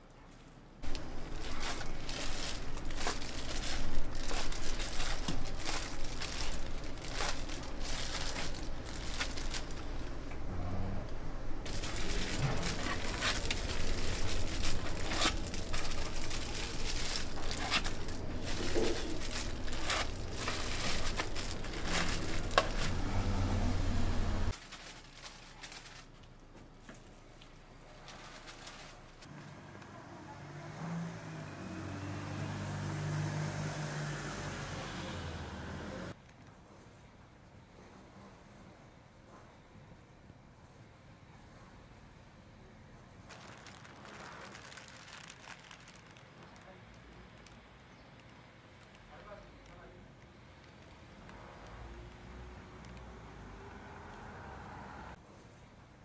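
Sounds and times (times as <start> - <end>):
plastic packaging rustling: 0.8 - 10.4, 11.2 - 29.3, 43.3 - 49.8.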